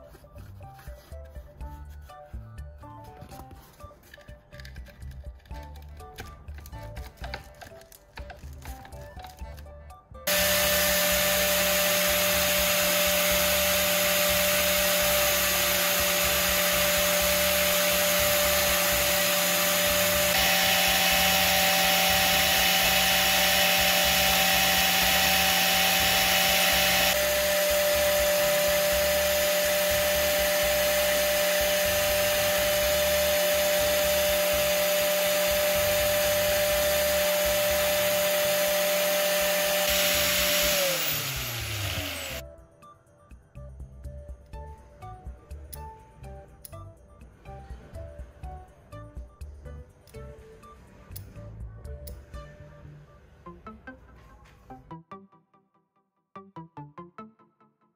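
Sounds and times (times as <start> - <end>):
power tool motor whining: 10.3 - 42.4.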